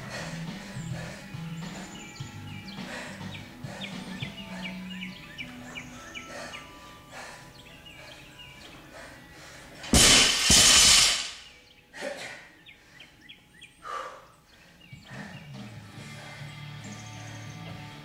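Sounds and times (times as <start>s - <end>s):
barbell crashing onto gym floor: 9.9s - 11.4s.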